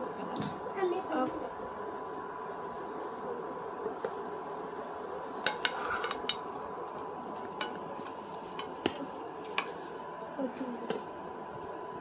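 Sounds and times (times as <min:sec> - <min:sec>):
metal spoon tapping frying pan: 0:05.4 - 0:06.5, 0:07.3 - 0:09.8.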